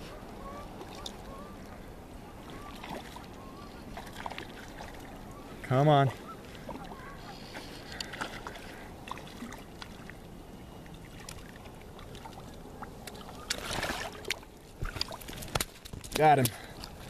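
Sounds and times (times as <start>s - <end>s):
water sloshing and lapping: 0.0s - 17.0s
splashing: 2.4s - 5.3s, 6.2s - 10.2s, 11.0s - 17.0s.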